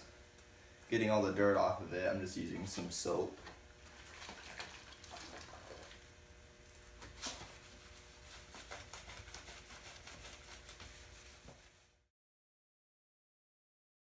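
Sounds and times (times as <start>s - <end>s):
low steady hum: 0.0s - 12.0s
cloth wiping painted frame: 7.2s - 12.1s.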